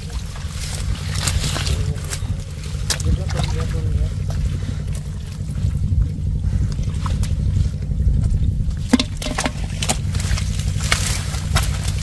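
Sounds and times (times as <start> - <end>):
steady low rumble: 0.0 - 12.0
water sloshing and trickling: 0.0 - 12.0
short splashes or knocks: 8.8 - 11.8.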